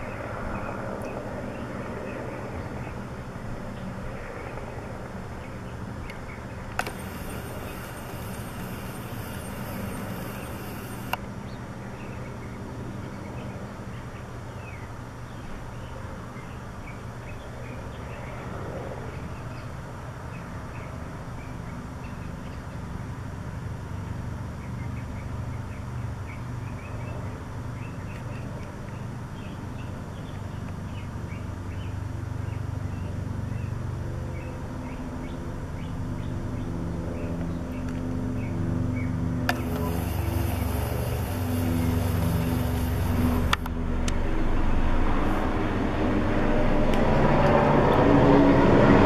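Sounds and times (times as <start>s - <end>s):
low traffic rumble: 0.0s - 21.9s, 23.0s - 49.0s
sharp clicks: 6.7s - 11.2s, 39.5s - 43.7s
brief high hiss: 6.8s - 11.2s, 39.5s - 43.7s.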